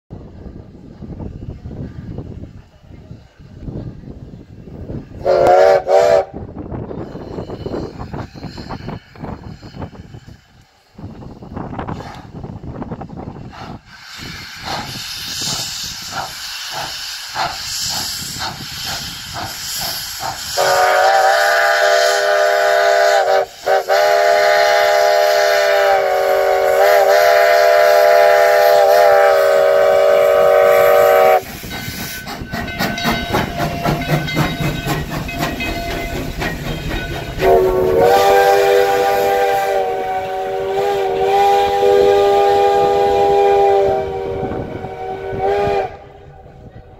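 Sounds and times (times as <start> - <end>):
steam hiss: 0.2 - 46.7
steam locomotive exhaust chuffs: 0.2 - 46.9
steam whistle blast: 5.2 - 6.5, 20.4 - 31.4, 37.4 - 46.7
train wheels clattering: 13.4 - 43.1.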